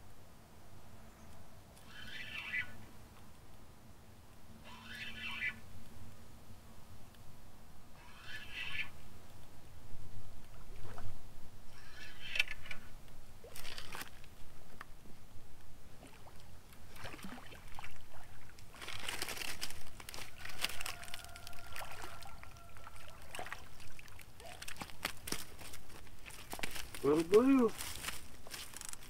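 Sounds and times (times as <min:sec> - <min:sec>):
fish splashing in water: 0:16.9 - 0:25.6.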